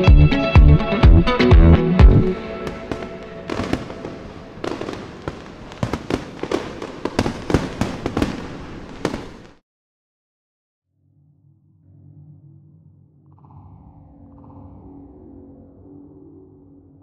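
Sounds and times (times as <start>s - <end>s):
fireworks bangs and crackles: 2.6s - 9.6s.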